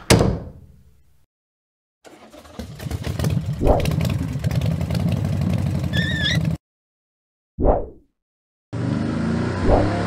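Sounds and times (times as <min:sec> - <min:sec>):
truck engine running: 0:02.1 - 0:06.6
wavering high squeak: 0:05.9 - 0:06.6.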